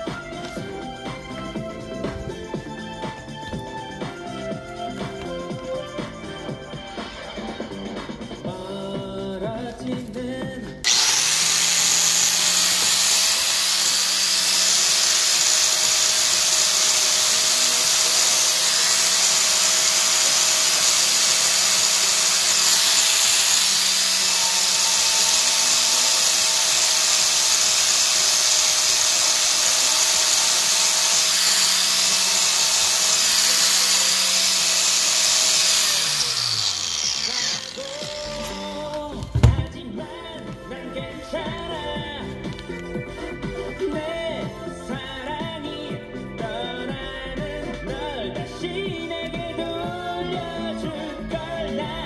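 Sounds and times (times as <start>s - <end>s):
angle grinder polishing: 10.8s - 39.4s.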